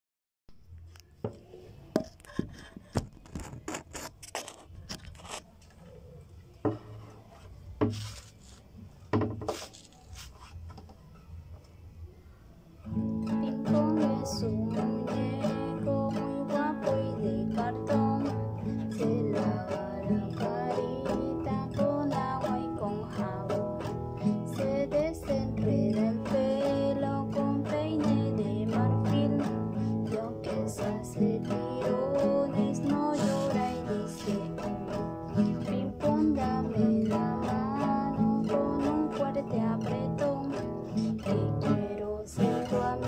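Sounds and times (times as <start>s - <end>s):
classical guitar strumming chords: 12.8s - 43.0s.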